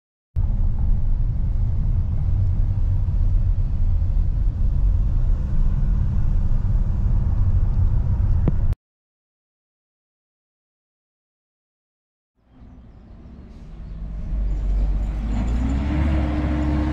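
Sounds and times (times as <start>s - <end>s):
van engine and road noise: 0.4s - 8.8s, 12.4s - 16.9s.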